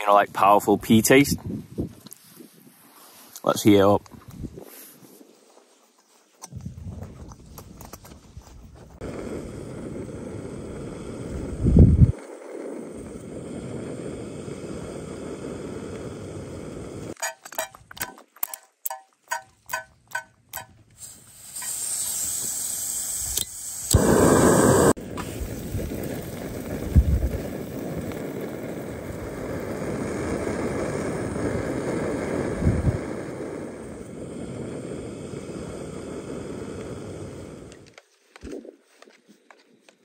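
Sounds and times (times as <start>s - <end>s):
gas stove burning: 9.0s - 17.2s, 19.7s - 38.0s
spray bottle spritzing: 20.1s - 25.8s
food frying: 21.6s - 30.6s.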